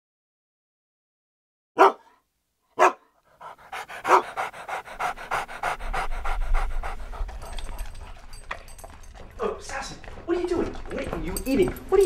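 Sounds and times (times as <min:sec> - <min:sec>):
dog panting: 0:02.8 - 0:12.0.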